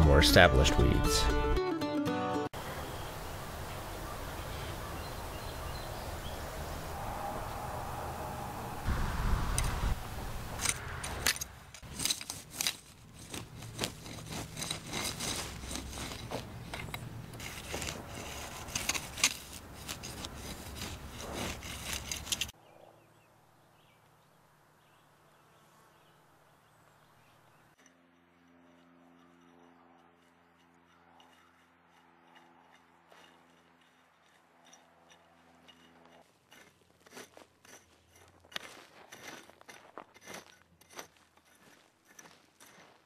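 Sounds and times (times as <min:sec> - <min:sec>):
hoe scraping through dry soil: 0:08.9 - 0:22.6, 0:27.7 - 0:43.0.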